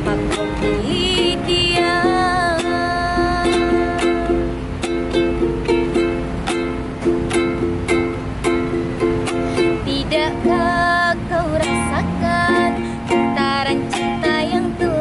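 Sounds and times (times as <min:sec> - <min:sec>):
person singing: 0:00.0 - 0:04.5, 0:09.8 - 0:15.0
ukulele strumming: 0:00.0 - 0:15.0.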